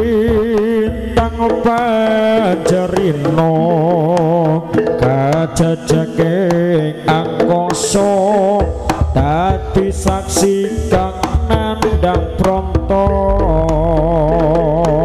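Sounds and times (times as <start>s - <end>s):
hand-drum strokes: 0.0s - 15.0s
deep low tone: 13.2s - 14.9s.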